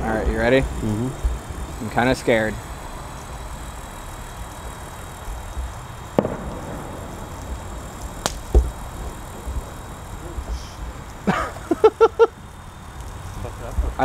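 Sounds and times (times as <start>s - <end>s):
outdoor rumble and hiss: 0.0s - 14.0s
sharp clicks: 3.2s - 9.7s
low thump: 8.2s - 8.8s.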